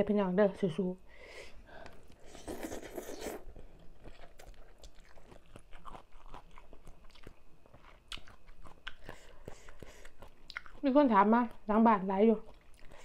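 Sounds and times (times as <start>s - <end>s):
person slurping noodles: 2.2s - 3.5s
wet chewing and crunching: 2.3s - 13.0s.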